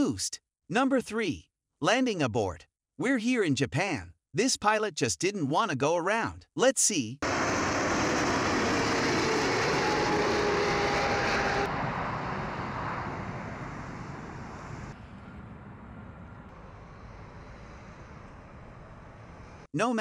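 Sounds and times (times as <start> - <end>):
jet engines rushing with whine: 7.2 - 19.7.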